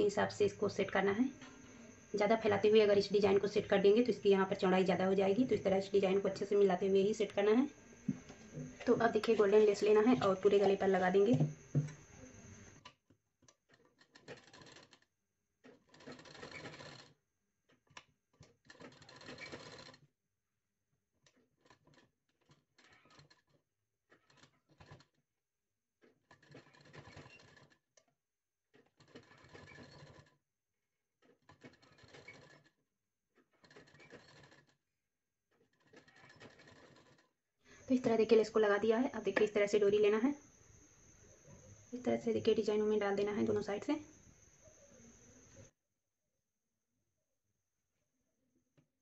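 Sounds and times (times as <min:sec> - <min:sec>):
sewing machine stitching: 0:00.4 - 0:20.1, 0:21.2 - 0:25.2, 0:26.0 - 0:28.0, 0:28.8 - 0:30.4, 0:31.2 - 0:32.8, 0:33.4 - 0:34.8, 0:35.6 - 0:38.2.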